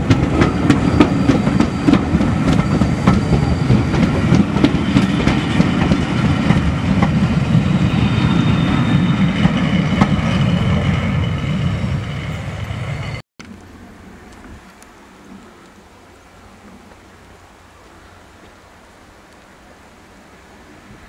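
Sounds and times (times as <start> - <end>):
train wheels rumbling on rails: 0.0 - 13.2
background hiss: 13.4 - 21.0.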